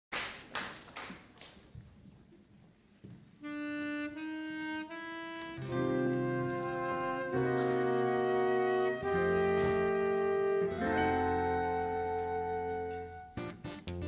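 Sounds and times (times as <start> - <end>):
faint hall noise: 0.1 - 14.0
woodwind playing held notes: 3.4 - 13.6
band playing sustained chords: 5.6 - 13.3.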